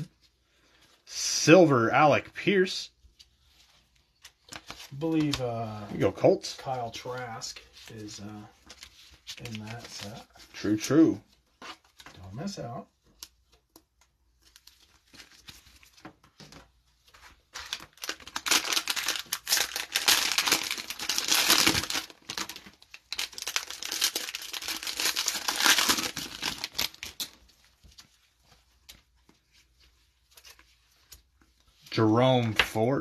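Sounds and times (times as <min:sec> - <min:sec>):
cellophane wrapper crinkling: 0:17.4 - 0:28.0.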